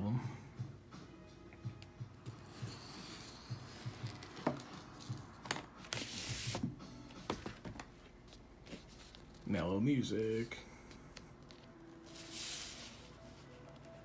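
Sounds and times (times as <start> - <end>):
faint music: 0.0 - 14.0
cardboard record jacket rustling: 2.4 - 6.7, 7.5 - 10.0, 11.4 - 14.0.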